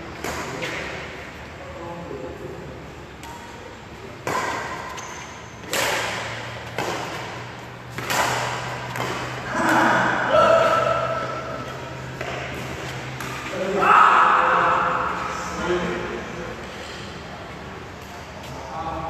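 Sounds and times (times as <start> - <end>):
badminton racket hitting shuttlecock: 4.2 - 13.6
voices calling out: 9.0 - 19.0.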